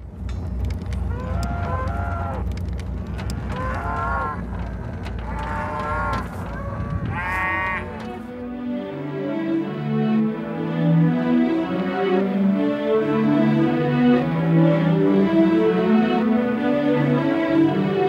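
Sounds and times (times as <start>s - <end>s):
scattered clanks: 0.0s - 8.3s
low rumble: 0.0s - 8.6s
cattle bawling: 1.1s - 2.5s, 3.4s - 8.1s.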